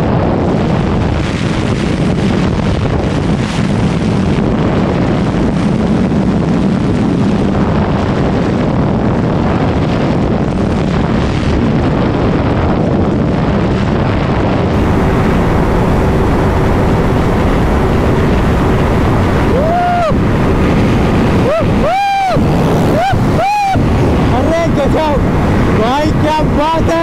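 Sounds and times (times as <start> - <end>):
wind rushing on microphone: 0.0 - 27.0
motorcycle engine at speed: 9.4 - 27.0.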